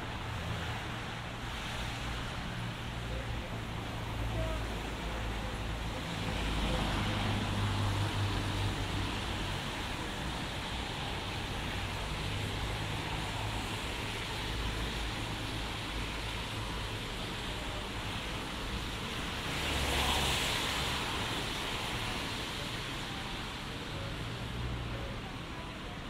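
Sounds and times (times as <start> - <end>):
car passing on wet road: 0.0 - 25.6
wet road surface hiss: 0.0 - 25.8
city traffic on wet road: 0.0 - 26.0.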